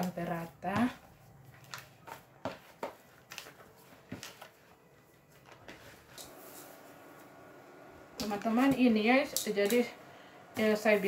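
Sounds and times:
hands kneading dough: 0.0 - 7.2.

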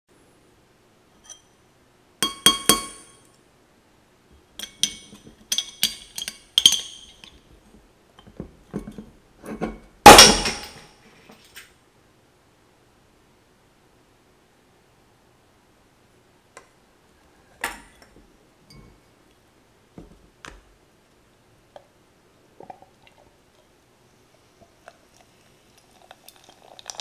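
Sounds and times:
metal spoon clinking on glass: 2.2 - 3.2, 4.6 - 7.4.

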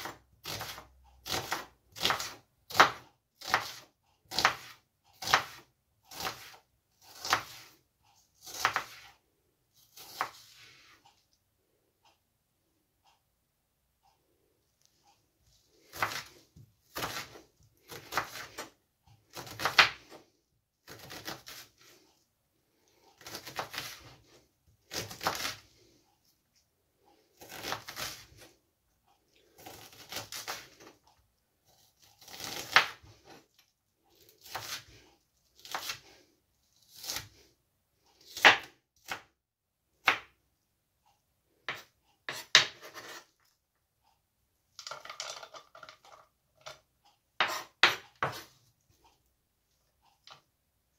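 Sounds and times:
knife chopping on wooden board: 0.0 - 7.7, 8.4 - 9.1, 15.9 - 18.7, 19.3 - 20.2, 31.8 - 33.4, 34.4 - 34.8, 38.2 - 39.2, 40.0 - 40.3, 41.7 - 43.2, 47.4 - 48.5.

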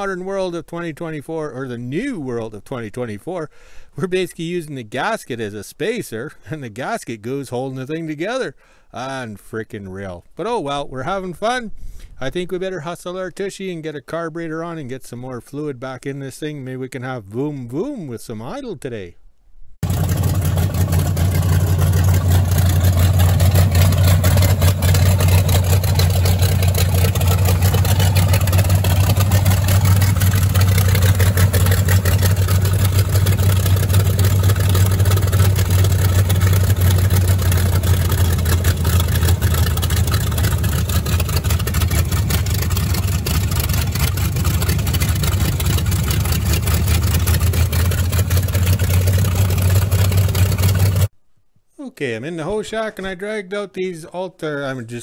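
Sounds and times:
truck engine idling: 19.8 - 51.1.

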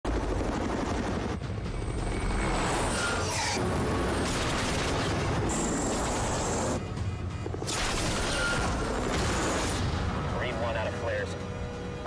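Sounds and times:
helicopter rotors rumbling: 0.0 - 8.0.

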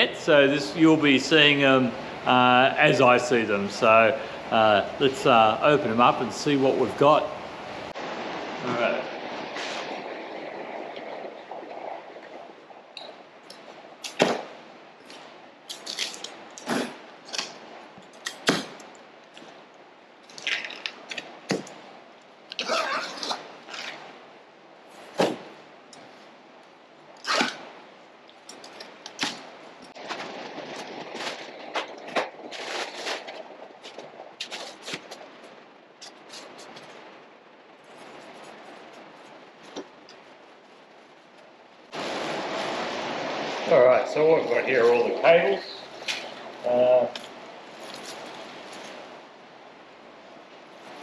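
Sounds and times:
packing straps snapping: 15.1 - 19.5, 27.2 - 27.6.

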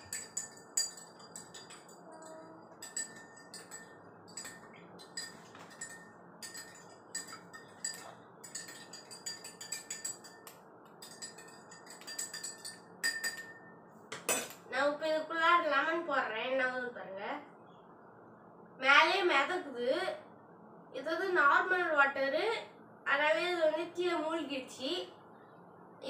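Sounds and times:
spoon clinking against glass: 0.0 - 13.7.

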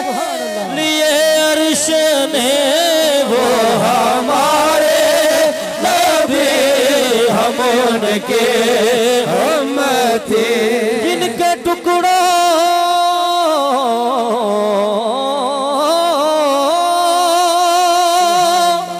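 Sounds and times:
voices chanting devotional song: 0.0 - 18.9.

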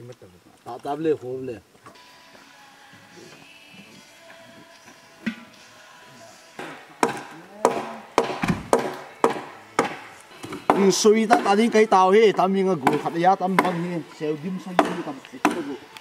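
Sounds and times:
person chanting: 2.4 - 16.0
chopping strikes on wood: 6.6 - 11.7, 12.8 - 13.9, 14.8 - 15.8.

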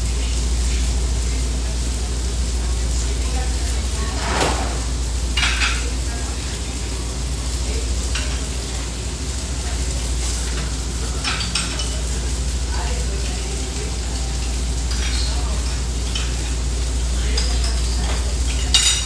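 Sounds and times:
food sizzling on a grill: 0.0 - 19.0
steady low hum: 1.0 - 10.2
plates and utensils clinking: 10.4 - 12.2, 14.9 - 16.6, 17.2 - 19.0.

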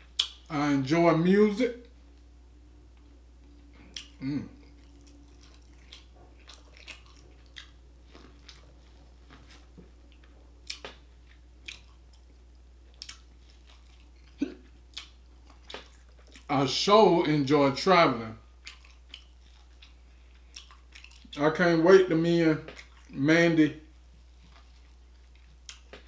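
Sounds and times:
person chewing crisp chips: 3.8 - 16.5, 18.5 - 21.4, 22.7 - 23.2, 24.3 - 26.0.

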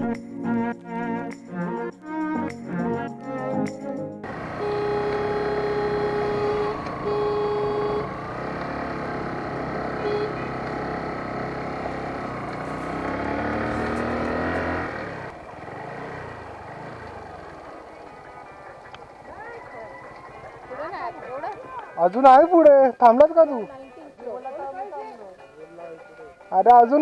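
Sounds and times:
motorcycle engine: 4.2 - 22.4
vehicle horn honking: 4.3 - 15.3.

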